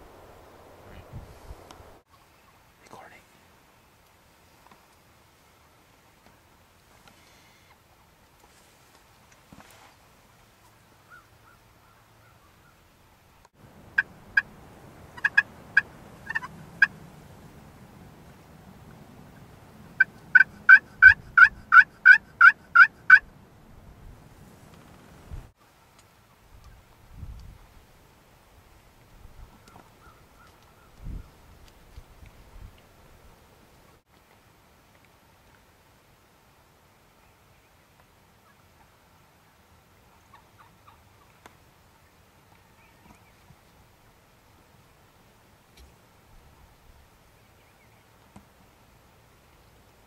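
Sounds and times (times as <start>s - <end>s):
turkeys gobbling faintly: 13.5s - 17.5s, 18.2s - 23.3s, 38.4s - 43.7s
turkey call hen yelps: 15.2s - 16.9s, 20.0s - 23.2s.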